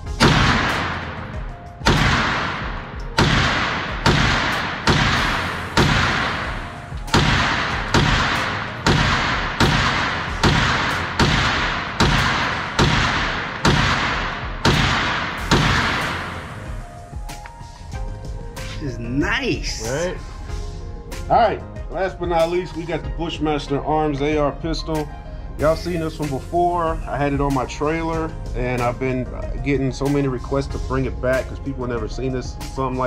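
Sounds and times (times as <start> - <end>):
carbine gunshots echoing indoors: 0.2 - 16.7.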